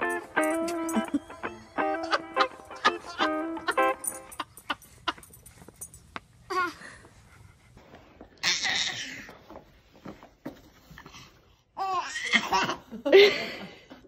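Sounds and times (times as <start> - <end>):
baby laughing: 2.0 - 5.2.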